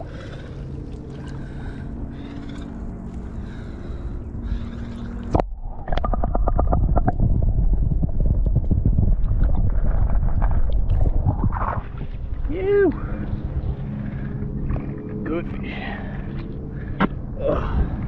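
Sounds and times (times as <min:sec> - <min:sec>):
muffled underwater rumble: 0:00.0 - 0:18.0
wind: 0:00.0 - 0:18.0
bubbling clicks: 0:05.3 - 0:11.8.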